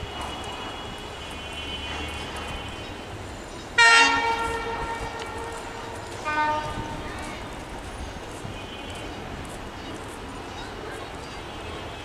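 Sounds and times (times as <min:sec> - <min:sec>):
diesel locomotive rumble: 0:00.0 - 0:11.2
train horn blast: 0:03.8 - 0:07.2.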